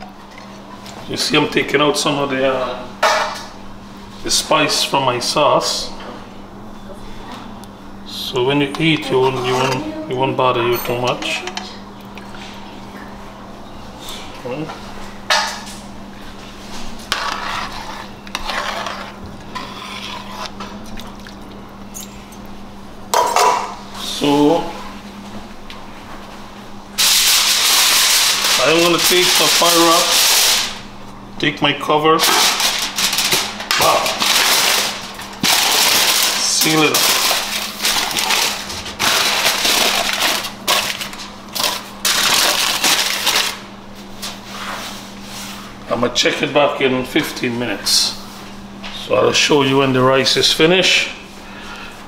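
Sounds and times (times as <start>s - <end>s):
spoon stirring and scraping pot: 17.0s - 20.7s
aluminium foil crinkling: 27.0s - 30.8s, 32.2s - 43.7s.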